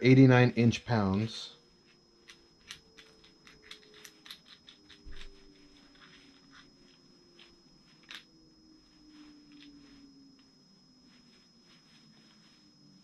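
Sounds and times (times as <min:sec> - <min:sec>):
faint high-pitched tone: 0:00.0 - 0:13.0.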